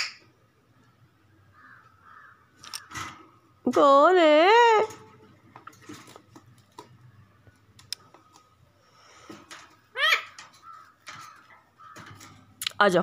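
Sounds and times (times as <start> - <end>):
clicks and taps on wire cage: 4.7 - 8.6, 9.2 - 12.8.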